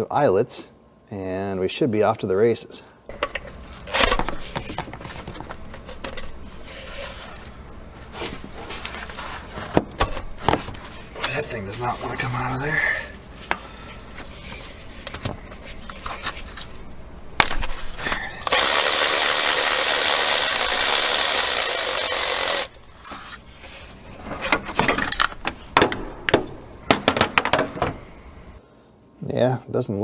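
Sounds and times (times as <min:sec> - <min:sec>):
power ratchet whirring: 0:18.4 - 0:22.9.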